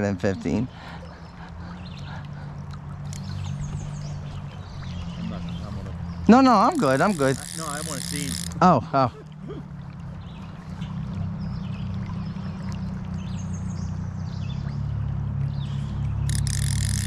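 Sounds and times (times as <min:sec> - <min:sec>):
river water flowing: 0:00.0 - 0:17.0
high buzzing burst: 0:06.6 - 0:08.6.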